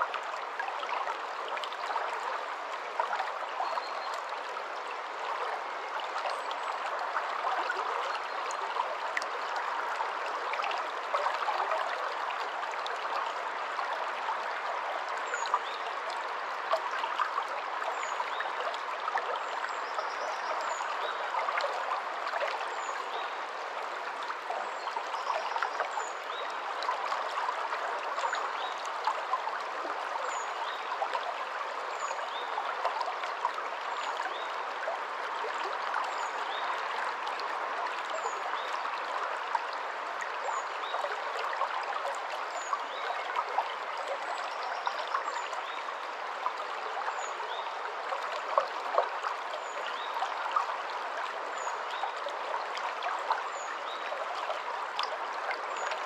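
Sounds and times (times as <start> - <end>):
stream flowing over stones: 0.0 - 56.0.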